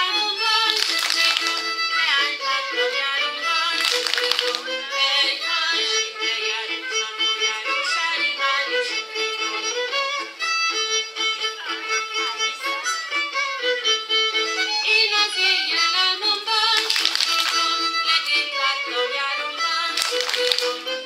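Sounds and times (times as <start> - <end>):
folk dance music with fiddle: 0.0 - 21.0
hand claps: 0.6 - 1.8, 3.8 - 4.7, 16.7 - 17.8, 19.9 - 20.9.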